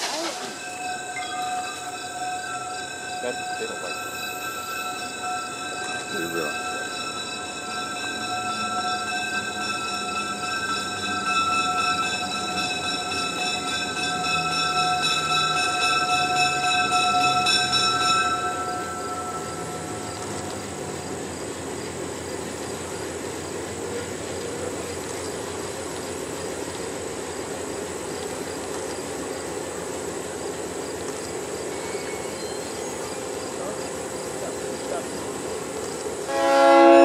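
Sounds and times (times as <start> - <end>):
train rumbling: 0.0 - 37.0
locomotive air horn: 36.3 - 37.0.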